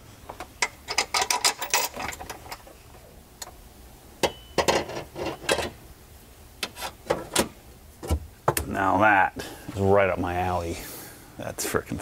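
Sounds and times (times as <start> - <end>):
metal ringing: 4.2 - 5.6.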